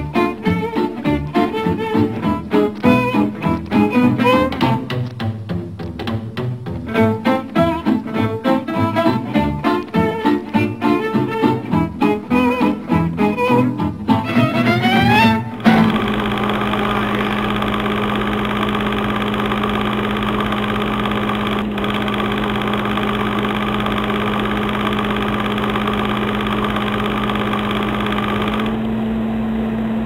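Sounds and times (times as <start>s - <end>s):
film projector whirring: 15.5s - 30.0s
low hum: 15.5s - 30.0s.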